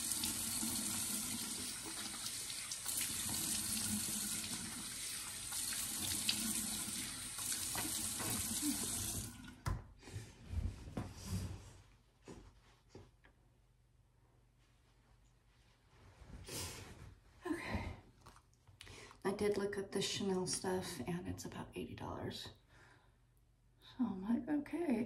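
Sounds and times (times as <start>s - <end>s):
sink faucet running: 0.0s - 9.6s.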